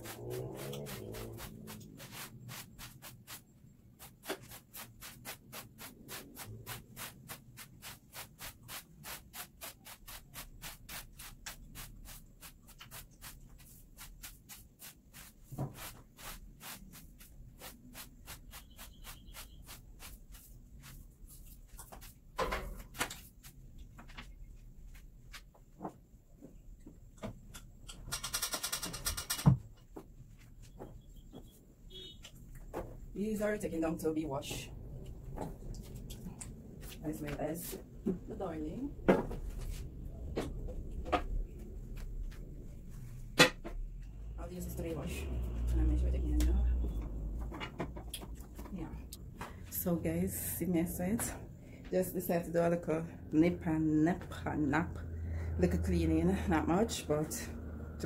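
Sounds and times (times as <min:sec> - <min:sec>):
broom sweeping a hard floor: 0:00.0 - 0:23.7.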